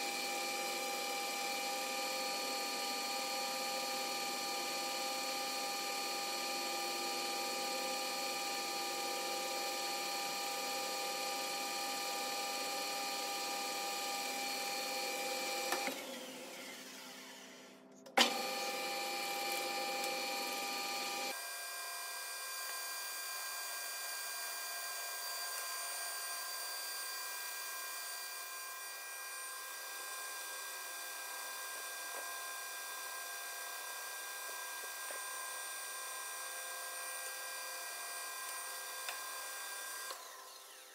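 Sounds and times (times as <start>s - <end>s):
metal lathe whining: 0.0s - 21.4s.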